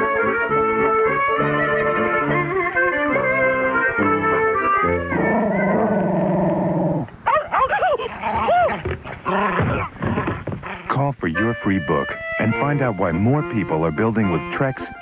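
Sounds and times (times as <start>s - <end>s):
music with plucked notes: 0.0s - 6.2s, 11.3s - 15.0s
dog growling: 5.0s - 7.1s, 8.1s - 10.9s.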